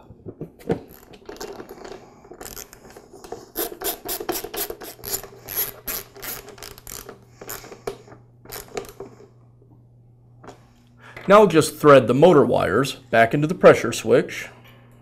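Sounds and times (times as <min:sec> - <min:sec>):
socket ratchet clicking: 0:03.6 - 0:07.7.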